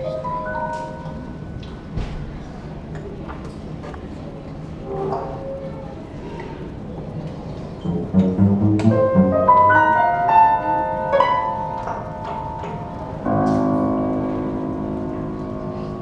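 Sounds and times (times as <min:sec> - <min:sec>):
chamber music ensemble: 0:00.0 - 0:01.7, 0:07.6 - 0:16.0
piano run: 0:07.8 - 0:16.0.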